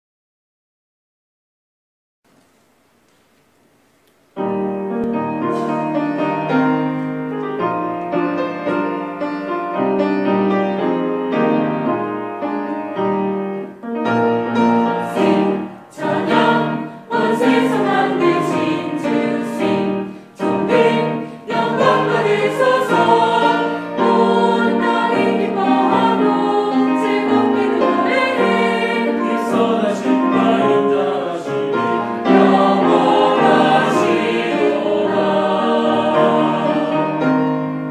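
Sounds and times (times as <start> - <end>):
piano: 2.3 - 37.9
mixed choir singing: 14.6 - 37.9.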